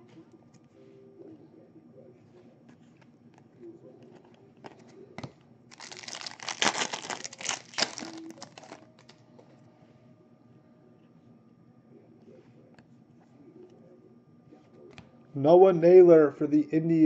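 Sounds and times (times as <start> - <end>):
wrapper tearing and crinkling: 5.7 - 9.1.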